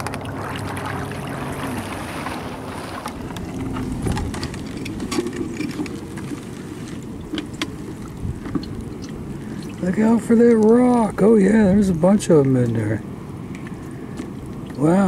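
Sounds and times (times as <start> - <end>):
wind on microphone: 0.0 - 9.9
water splashing and draining: 0.0 - 11.0.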